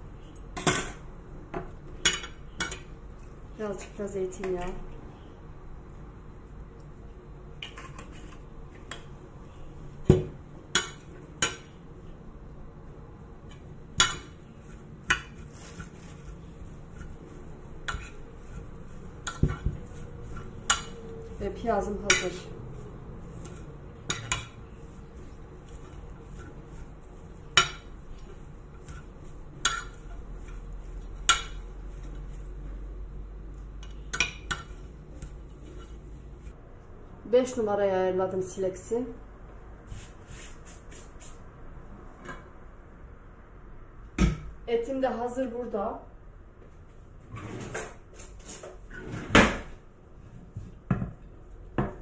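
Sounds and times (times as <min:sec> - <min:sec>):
spoon scraping plate: 0:13.5 - 0:21.4, 0:22.1 - 0:32.5.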